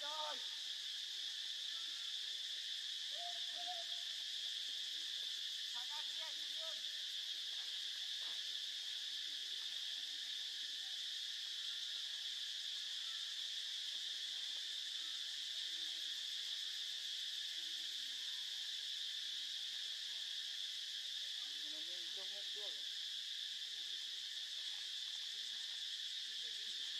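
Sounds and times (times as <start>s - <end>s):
insect chorus buzzing: 0.0s - 26.9s.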